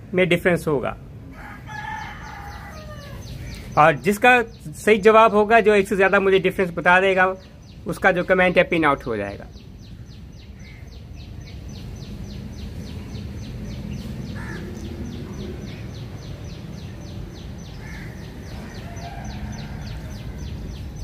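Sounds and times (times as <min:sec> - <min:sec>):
faint bird calls: 0:09.0 - 0:21.0
steady low rumble: 0:09.4 - 0:21.0.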